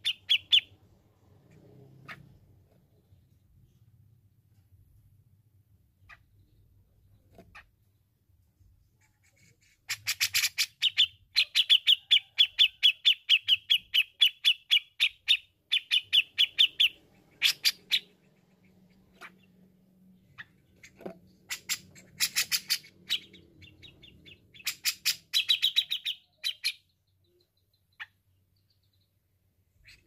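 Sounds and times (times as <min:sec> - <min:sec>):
bulbul calling: 0:00.0 - 0:00.8, 0:09.8 - 0:19.6, 0:20.2 - 0:28.3.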